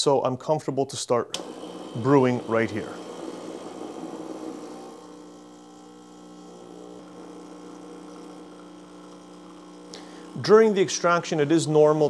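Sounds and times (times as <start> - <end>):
espresso machine pump humming: 1.4 - 12.0.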